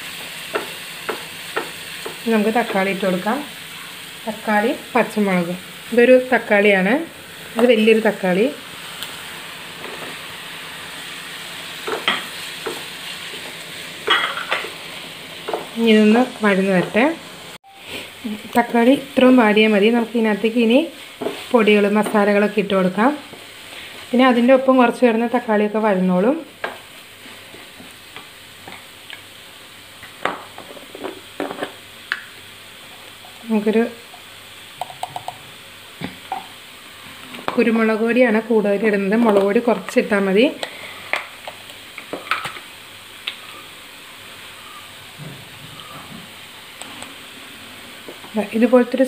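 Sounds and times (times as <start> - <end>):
vegetables sizzling in frying pan: 0.0 - 49.0
spatula scraping a frying pan: 20.8 - 22.2.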